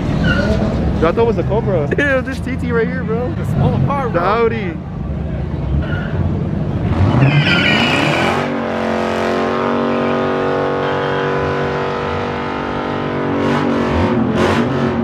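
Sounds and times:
tyres squealing: 0.2s - 0.7s, 7.0s - 8.3s
car engine revving: 5.5s - 15.0s.

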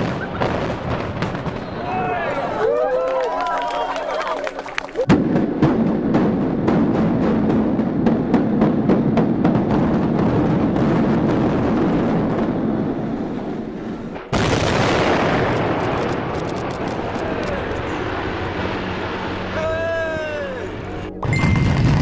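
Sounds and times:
explosive bangs: 0.0s - 2.5s, 5.0s - 19.7s, 21.1s - 22.0s
heavy rumble of collapse: 4.4s - 22.0s.

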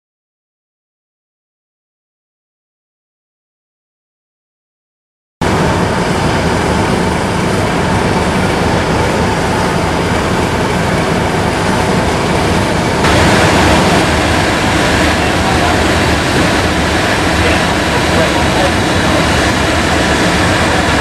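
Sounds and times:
low rumble: 5.4s - 21.0s
steam locomotive hissing: 5.4s - 21.0s.

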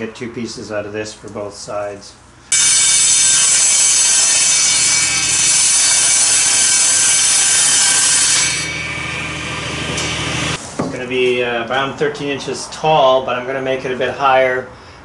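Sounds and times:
table saw cutting plywood: 2.5s - 10.6s.

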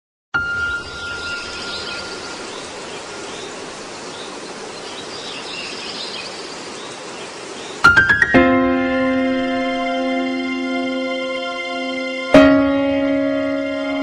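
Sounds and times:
steady background hiss: 0.4s - 12.4s
background music with held tones: 7.8s - 14.0s.

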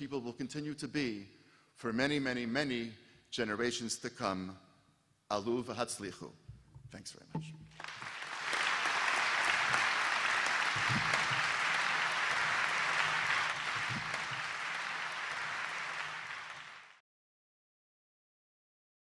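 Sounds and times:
audience applauding: 7.7s - 17.0s.

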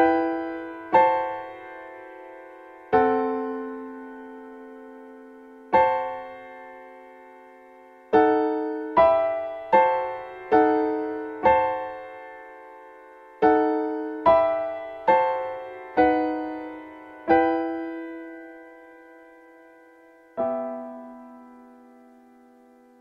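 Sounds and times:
slow solo piano melody: 0.0s - 23.0s.

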